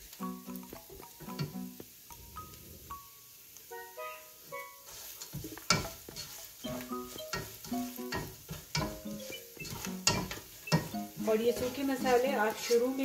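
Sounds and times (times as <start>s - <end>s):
light background melody: 0.0s - 5.1s, 5.8s - 13.0s
oil sizzling: 0.0s - 13.0s
spatula scraping pan: 4.8s - 13.0s.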